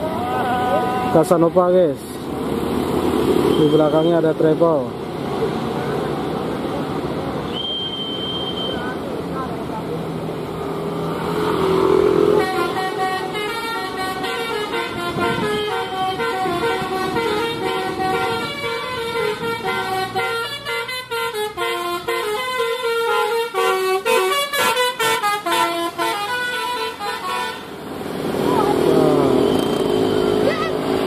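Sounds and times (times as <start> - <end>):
bus horn playing a tune: 12.2 - 27.8.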